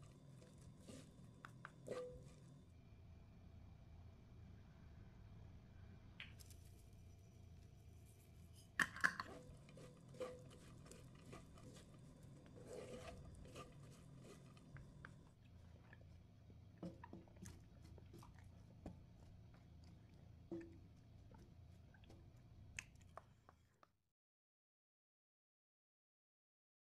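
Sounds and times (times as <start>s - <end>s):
spatulas stirring food in a pan: 0.0s - 2.7s, 9.0s - 23.7s.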